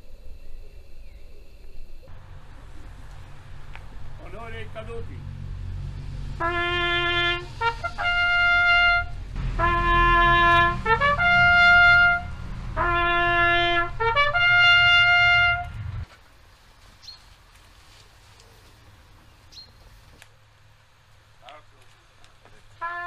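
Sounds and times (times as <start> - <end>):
low rumble: 2.0 - 16.1
solo trumpet call: 6.4 - 15.9, 22.8 - 23.0.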